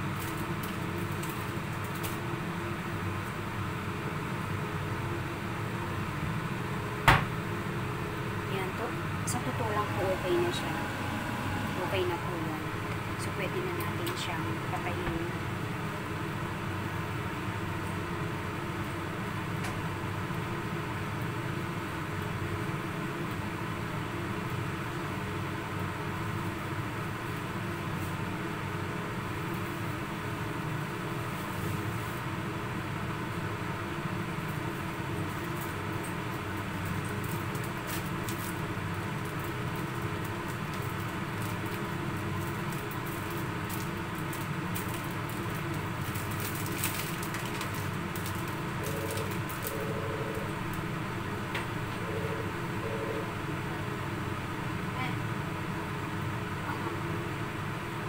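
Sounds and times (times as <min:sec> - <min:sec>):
crackling from frying pan: 0:00.0 - 0:04.9, 0:33.2 - 0:49.8
kitchen machinery humming: 0:00.0 - 0:58.0.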